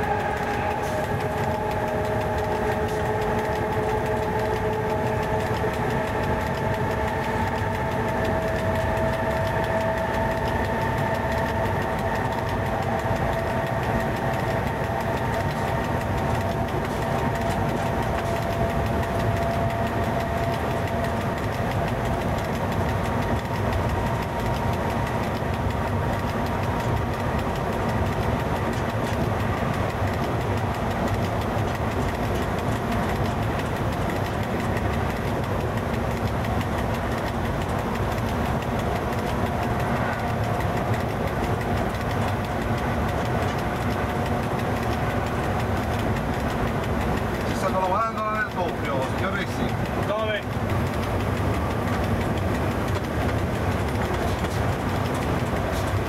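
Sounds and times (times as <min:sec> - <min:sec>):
whine of held tones: 0:00.0 - 0:26.9
locomotive cab running noise: 0:00.0 - 0:56.0.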